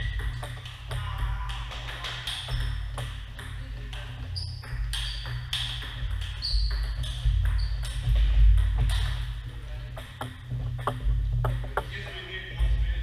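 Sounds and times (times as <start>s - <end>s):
table tennis ball clicking: 0.0s - 9.2s
low steady hum: 0.0s - 13.0s.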